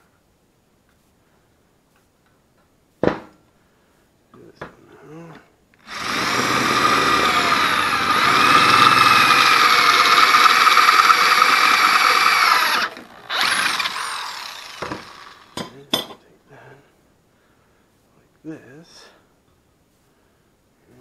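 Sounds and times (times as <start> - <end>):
electric drill boring into steel: 5.8 - 15.6.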